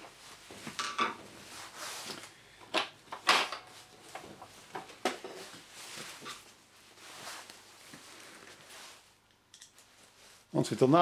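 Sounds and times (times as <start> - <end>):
scraping rustle: 5.3 - 9.1.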